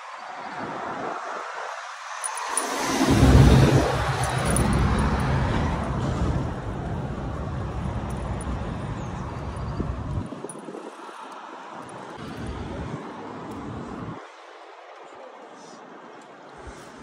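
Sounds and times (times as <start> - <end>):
vehicle passing close: 2.2 - 10.1
low engine rumble: 3.0 - 10.2.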